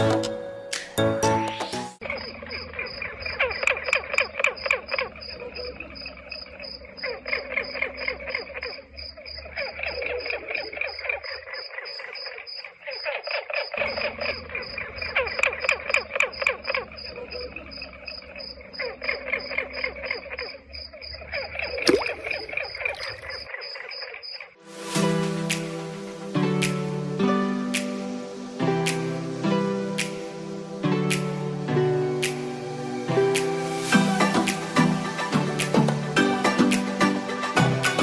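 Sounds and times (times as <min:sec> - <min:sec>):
frogs calling in chorus: 0:02.0 - 0:24.6
insect high-pitched pulsing: 0:02.0 - 0:24.6.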